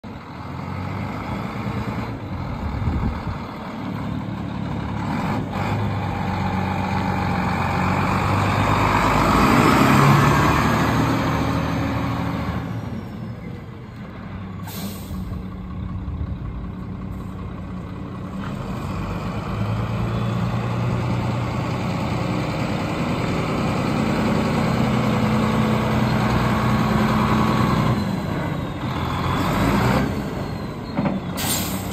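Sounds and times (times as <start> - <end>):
truck diesel engine running: 0.0 - 31.9
short hiss: 14.6 - 15.4.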